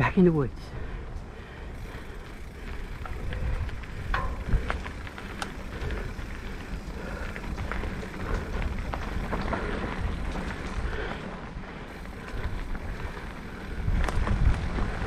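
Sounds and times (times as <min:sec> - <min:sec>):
bike tyres crunching on dirt: 0:00.0 - 0:15.0
low rumble: 0:01.1 - 0:15.0
small clicks and rattles: 0:01.8 - 0:11.2.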